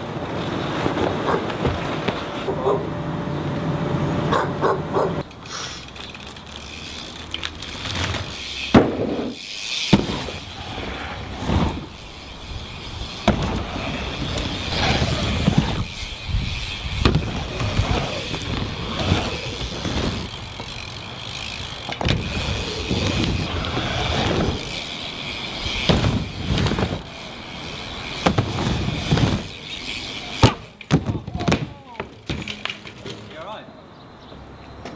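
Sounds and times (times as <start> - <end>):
bike tyres rolling: 0.0 - 34.9
bike landing thuds: 0.8 - 2.3, 7.6 - 10.6, 13.0 - 20.8, 21.4 - 24.9, 25.7 - 27.2, 28.0 - 33.3.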